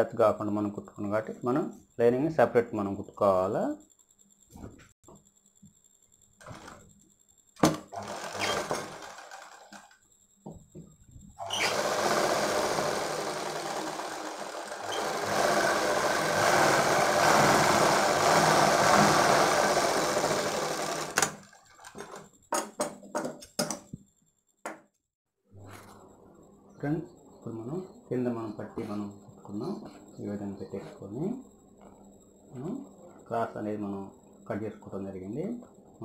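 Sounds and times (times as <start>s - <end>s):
sewing machine stitching fabric: 6.4s - 6.8s, 7.6s - 10.0s, 11.4s - 22.3s.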